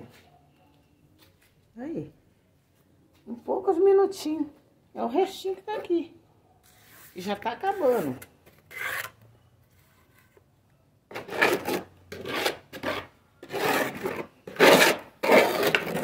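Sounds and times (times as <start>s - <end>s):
plastering tool scraping mortar: 6.7s - 9.2s, 11.1s - 16.0s.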